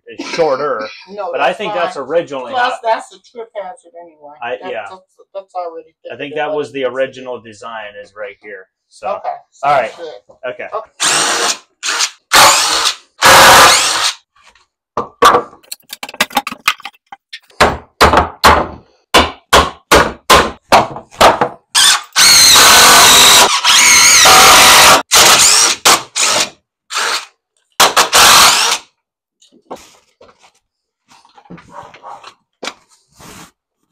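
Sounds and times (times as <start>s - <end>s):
drill driving screws into wood: 11.0s - 14.3s, 21.7s - 29.0s
hammer striking wood: 17.6s - 21.6s.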